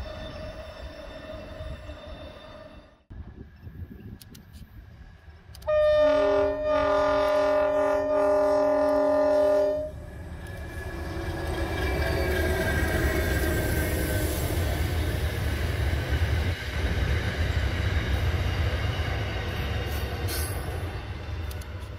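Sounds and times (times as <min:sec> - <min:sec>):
train rumble and wheels on rails: 0:00.0 - 0:21.9
train air horn blast: 0:05.6 - 0:10.0.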